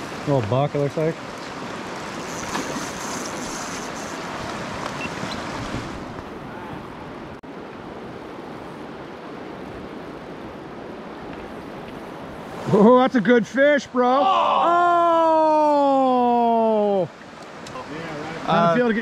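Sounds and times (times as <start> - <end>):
river water rushing: 0.0 - 19.0.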